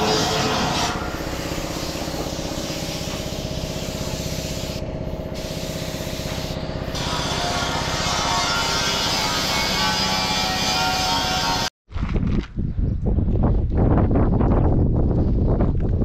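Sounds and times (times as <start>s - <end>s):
spray gun hissing: 0.0s - 7.4s
low engine-like drone: 0.0s - 8.8s.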